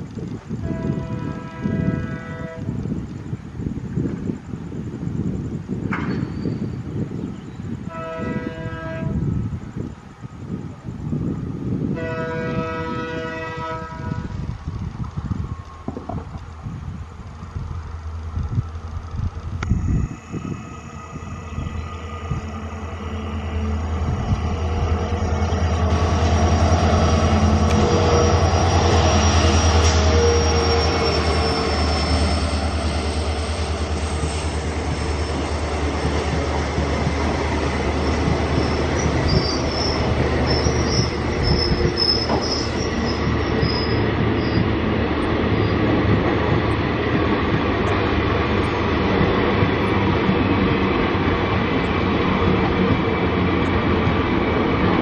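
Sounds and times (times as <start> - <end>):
diesel locomotive engine drone: 0.0 - 55.0
train wheels on rails: 0.0 - 55.0
high wheel squeals: 19.9 - 36.3, 37.9 - 44.8.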